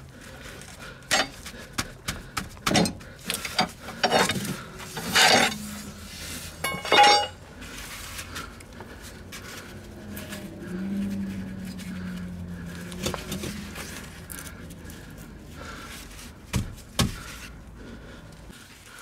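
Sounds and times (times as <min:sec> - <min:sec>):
metal tools clattering and scraping: 0:01.1 - 0:01.4, 0:02.8 - 0:07.4
metal tools clicking and knocking: 0:01.1 - 0:01.4, 0:02.7 - 0:05.6, 0:06.6 - 0:07.4
short ringing clink: 0:06.6 - 0:07.4.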